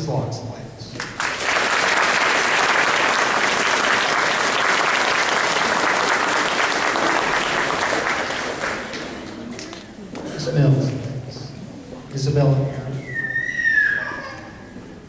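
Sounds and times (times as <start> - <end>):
audience clapping: 1.0 - 9.9.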